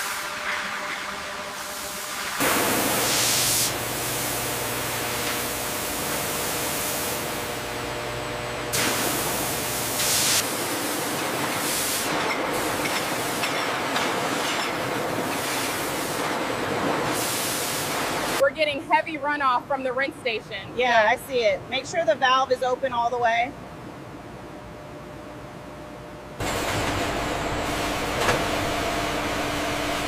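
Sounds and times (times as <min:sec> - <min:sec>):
machine hum: 0:00.0 - 0:17.2, 0:23.6 - 0:30.0
spray nozzles hissing: 0:01.6 - 0:07.4, 0:08.7 - 0:13.4.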